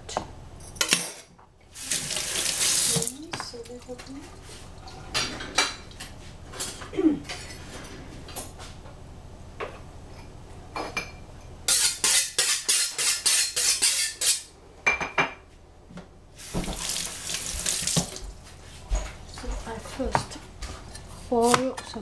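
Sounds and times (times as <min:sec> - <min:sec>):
dishes and utensils clinking: 0:00.6 - 0:01.3, 0:10.1 - 0:15.5.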